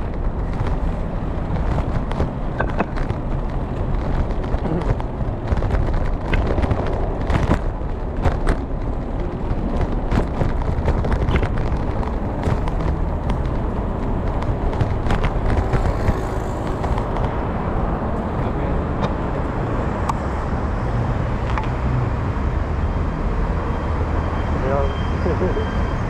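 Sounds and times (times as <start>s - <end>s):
bike clicks and rattles: 0.0s - 17.5s
wind and road noise rumble: 0.0s - 26.0s.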